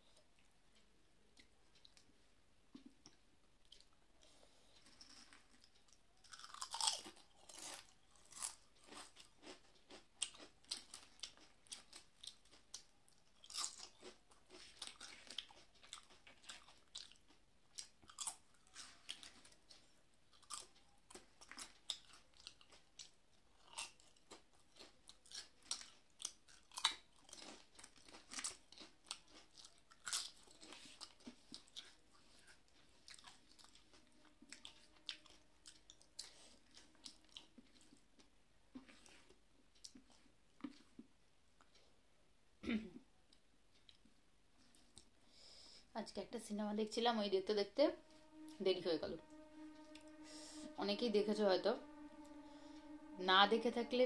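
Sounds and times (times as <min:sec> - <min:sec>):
chewing crunchy chips: 0:02.8 - 0:41.8.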